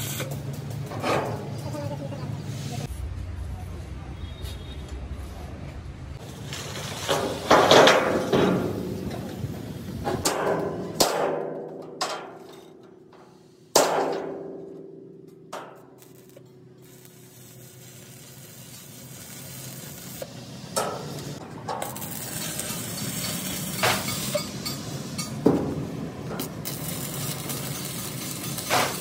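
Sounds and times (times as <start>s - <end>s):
steady hiss: 16.0s - 25.4s.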